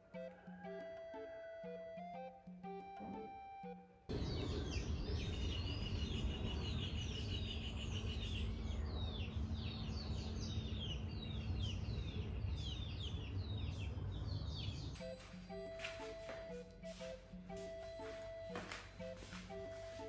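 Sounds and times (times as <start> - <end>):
birds chirping: 4.1 - 20.0.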